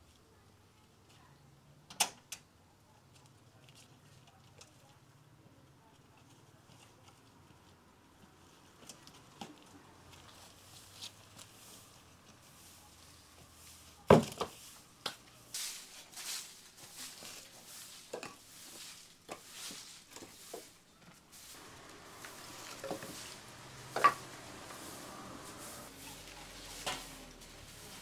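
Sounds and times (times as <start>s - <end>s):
broom sweeping leaves on tiles: 9.7s - 28.0s.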